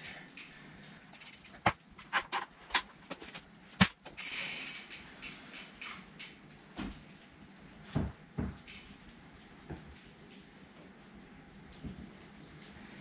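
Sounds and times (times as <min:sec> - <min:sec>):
bike hub ratcheting ticks: 0:00.0 - 0:01.6, 0:04.0 - 0:06.4.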